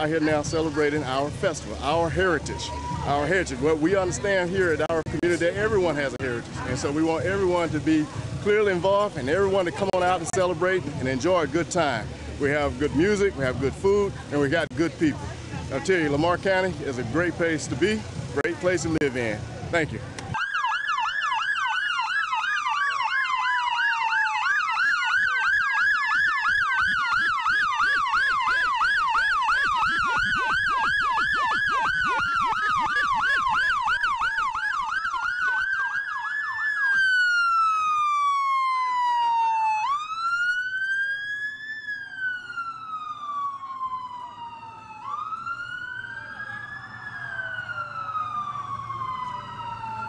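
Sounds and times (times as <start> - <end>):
siren slow wail: 20.3 - 50.0
siren fast yelp: 20.4 - 50.0.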